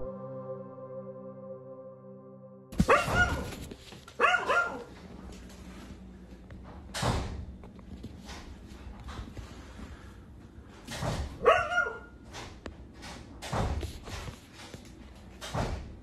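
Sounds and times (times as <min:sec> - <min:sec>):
ambient music tones: 0:00.0 - 0:02.8
dog barking: 0:02.8 - 0:03.6, 0:04.2 - 0:04.9, 0:11.4 - 0:12.2.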